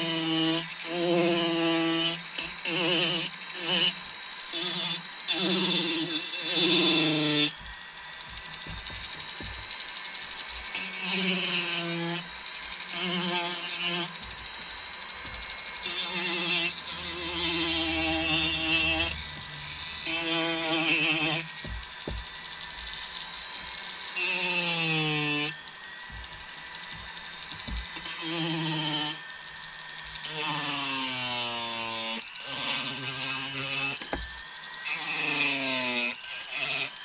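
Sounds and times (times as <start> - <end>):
rotary carving tool whining: 0.0 - 37.0
bur grinding into wood: 5.4 - 12.0, 12.9 - 28.9.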